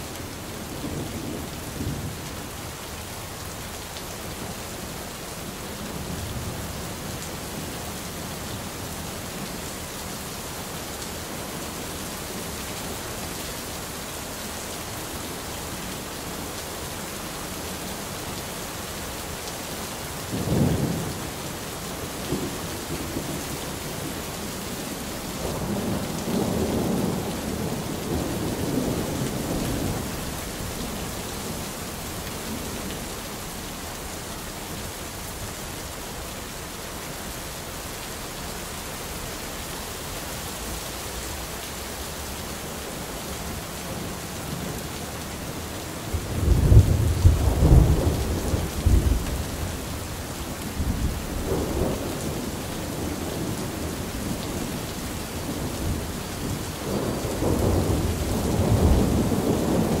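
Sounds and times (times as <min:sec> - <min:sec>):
steady rain: 0:00.0 - 1:00.0
thunder rumbling: 0:46.1 - 1:00.0.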